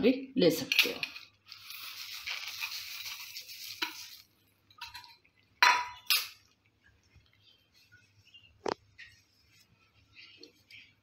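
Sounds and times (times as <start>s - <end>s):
sugar pouring hiss: 1.2s - 4.5s
spoon and bowl clinking: 4.8s - 6.4s.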